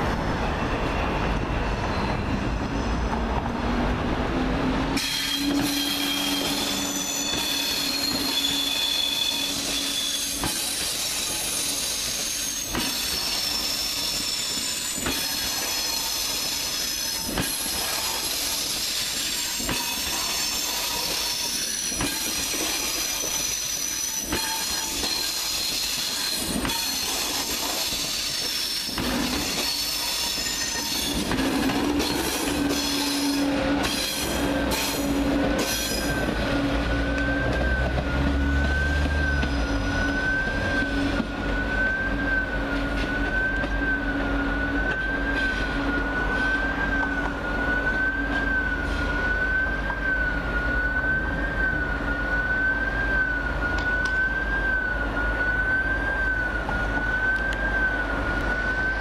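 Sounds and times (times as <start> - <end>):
train rumble: 0.0 - 59.0
train wheels squealing: 0.2 - 3.2, 5.0 - 59.0.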